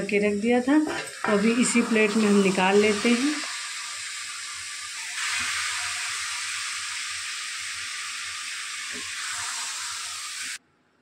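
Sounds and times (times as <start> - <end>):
sweet sizzling in a pan: 0.0 - 10.6.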